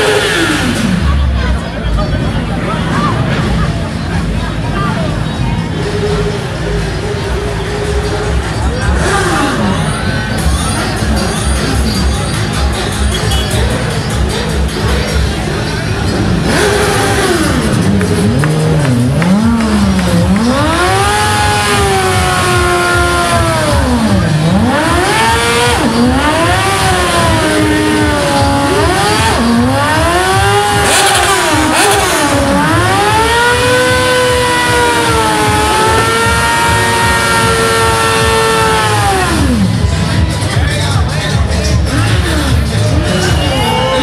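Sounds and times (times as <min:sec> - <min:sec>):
motorcycle engine revving: 0:00.0 - 0:44.0.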